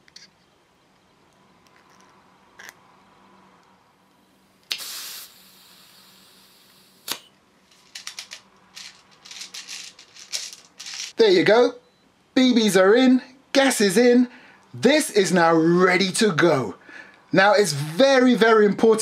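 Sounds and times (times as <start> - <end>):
gas hissing into shell: 4.7 - 7.2
metal shells clicking and knocking: 7.8 - 11.2.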